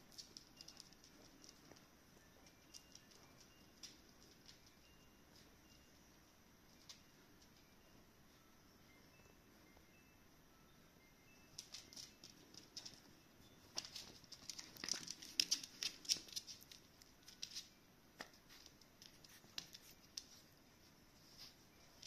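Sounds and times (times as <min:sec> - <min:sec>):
puppy paws pattering on hard floor: 0:00.0 - 0:06.0, 0:11.5 - 0:22.0.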